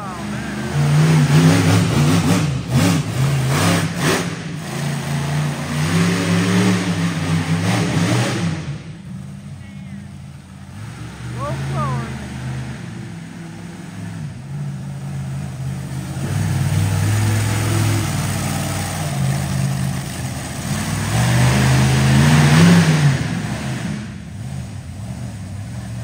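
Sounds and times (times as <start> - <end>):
truck engine revving: 0.0 - 26.0.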